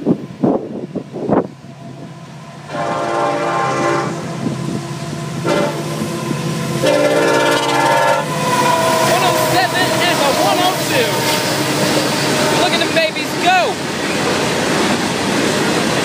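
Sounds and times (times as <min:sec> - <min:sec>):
train rumbling: 0:00.0 - 0:16.0
locomotive horn blasts: 0:02.7 - 0:04.5, 0:05.3 - 0:06.0, 0:06.8 - 0:13.4.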